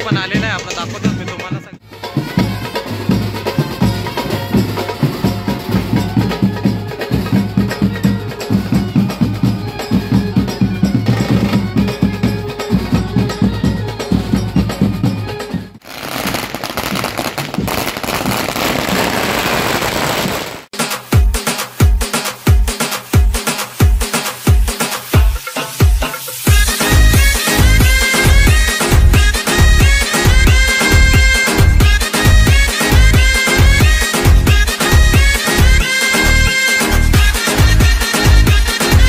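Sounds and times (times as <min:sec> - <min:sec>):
brass band playing dance music: 0:00.0 - 0:39.0
firecrackers crackling: 0:15.8 - 0:20.7.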